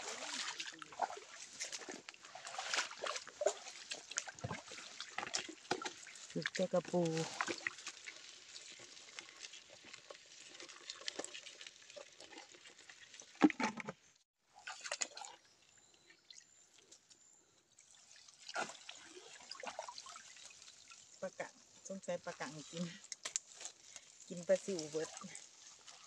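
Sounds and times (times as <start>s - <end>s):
water splashing and dripping: 0.0s - 13.9s, 14.6s - 15.4s, 17.8s - 26.0s.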